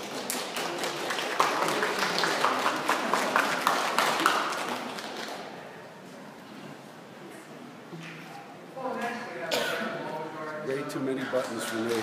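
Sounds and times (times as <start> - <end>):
small audience applauding: 0.0 - 5.6, 11.3 - 12.0.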